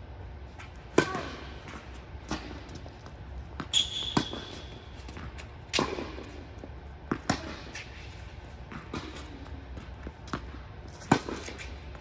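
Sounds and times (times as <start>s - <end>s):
tennis ball bouncing: 0.6s - 12.0s
tennis racket hitting ball: 0.8s - 9.3s.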